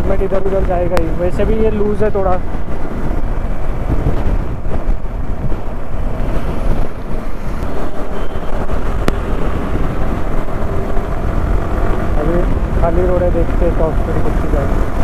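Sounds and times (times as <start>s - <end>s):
road noise: 0.0s - 15.0s
wind buffeting microphone: 0.0s - 15.0s
motorcycle engine: 1.2s - 15.0s.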